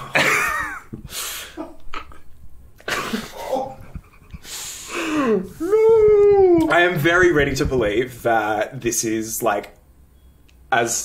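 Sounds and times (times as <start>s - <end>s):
stifled laughter: 2.8s - 6.6s
person groaning: 4.9s - 6.7s.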